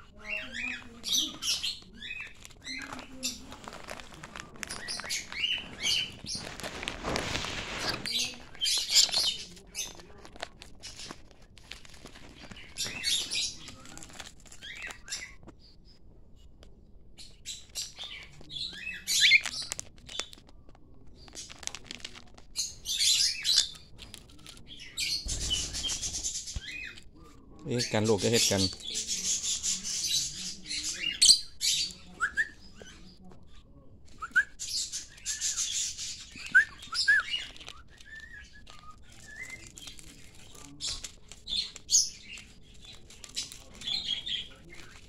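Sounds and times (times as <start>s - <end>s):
rustling: 0.2s - 15.6s, 19.1s - 33.4s, 34.0s - 45.0s
parrots chirping and squawking: 4.6s - 6.6s, 24.8s - 27.0s.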